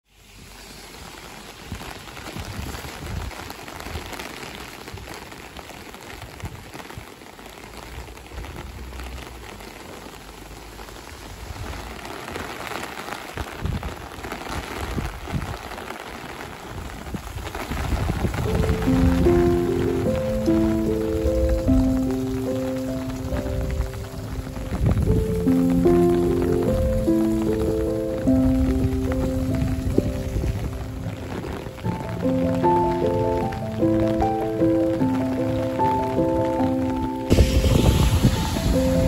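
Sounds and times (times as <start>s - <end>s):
heavy rain hiss: 0.0s - 39.0s
wind gusts buffeting microphone: 1.7s - 4.1s, 13.5s - 15.7s, 16.7s - 36.4s, 37.3s - 39.0s.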